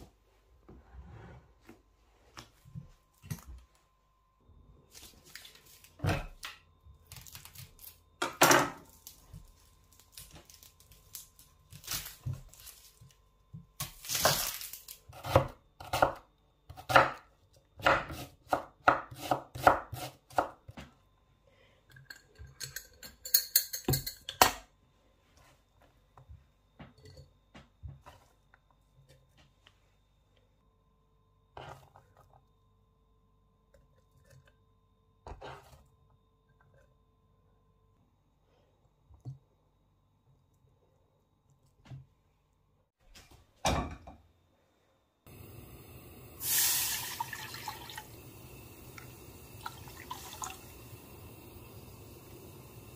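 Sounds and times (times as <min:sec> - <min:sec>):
knife chopping on wooden board: 0:17.8 - 0:20.6.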